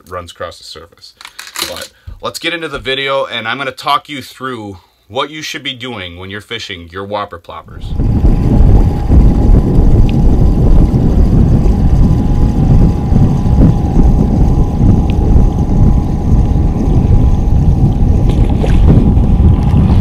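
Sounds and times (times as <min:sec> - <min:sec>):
faint steady whine: 0:07.6 - 0:20.0
wind buffeting microphone: 0:07.7 - 0:20.0.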